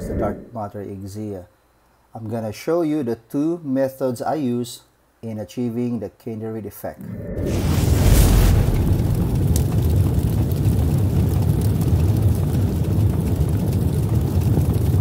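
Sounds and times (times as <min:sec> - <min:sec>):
cinematic whoosh and rumble: 0:07.0 - 0:11.4.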